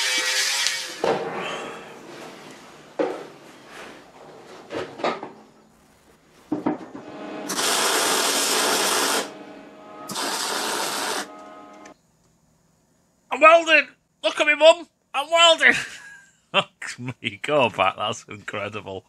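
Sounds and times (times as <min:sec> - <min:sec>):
welder arc crackling: 0:07.0 - 0:12.0.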